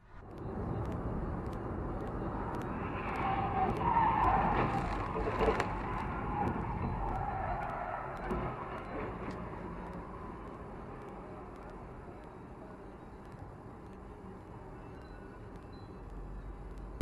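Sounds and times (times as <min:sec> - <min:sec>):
road and engine noise inside car: 0:00.0 - 0:17.0
tyres squealing: 0:02.6 - 0:09.4.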